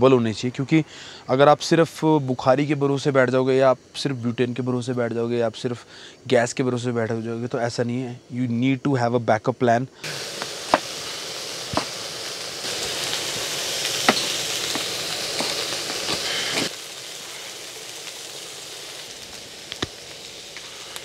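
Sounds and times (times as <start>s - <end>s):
food sizzling in a pan: 10.0s - 21.0s.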